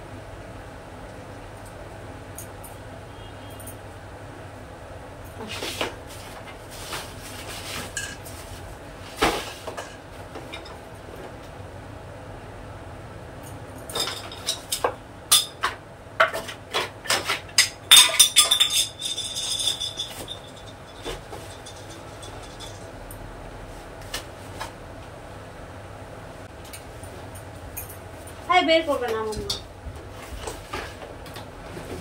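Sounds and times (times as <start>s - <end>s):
plastic toys clattering in suitcase: 15.6s - 22.8s.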